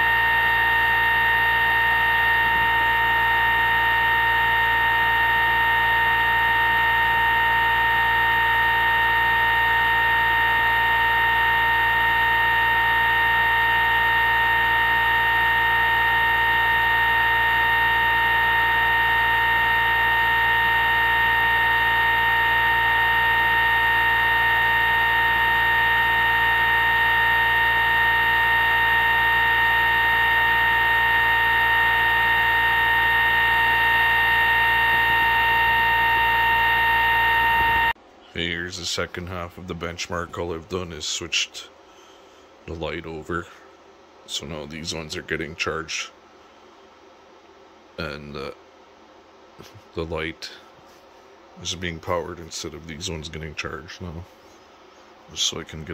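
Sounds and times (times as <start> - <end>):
low hum: 0.0 - 41.0
motor high-pitched electrical whine: 0.0 - 43.6.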